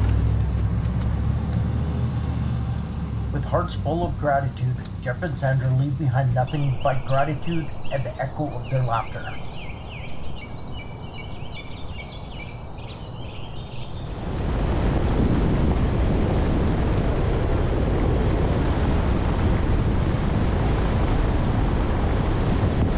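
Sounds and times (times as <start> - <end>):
truck driving on gravel road: 0.0 - 9.3
low rumble: 0.0 - 22.9
wind buffeting microphone: 3.0 - 22.9
birds chirping: 3.3 - 14.4.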